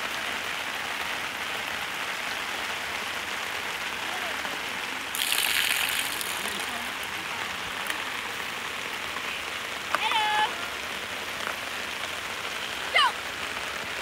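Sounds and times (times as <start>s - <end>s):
rain hissing: 0.0s - 14.0s.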